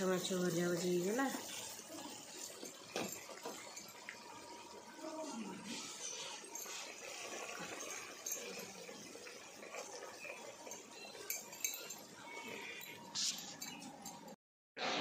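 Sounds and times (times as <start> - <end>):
faint bubbling of simmering curry: 0.0 - 13.1
light clinks: 10.7 - 14.4.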